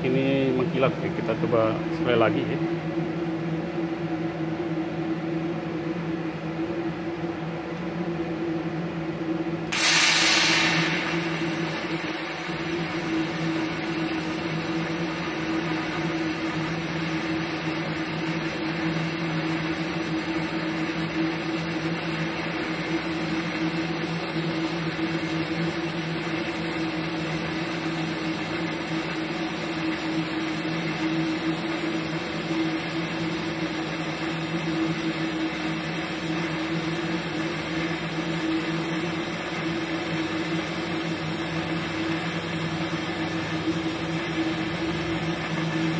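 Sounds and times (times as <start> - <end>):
welding arc humming: 9.6 - 45.9.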